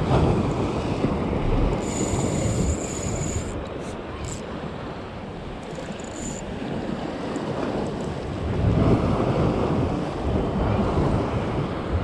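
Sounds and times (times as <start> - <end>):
wind noise on microphone: 0.0 - 12.0
fishing reel whirring: 1.7 - 4.6, 5.6 - 8.2.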